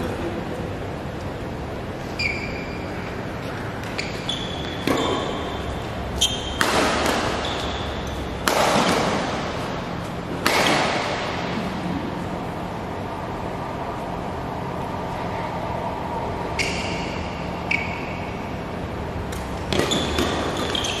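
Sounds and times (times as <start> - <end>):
sneakers squeaking on court: 2.0 - 9.0, 16.6 - 18.3, 19.6 - 21.0
rackets hitting shuttlecock: 3.4 - 11.6, 19.2 - 21.0.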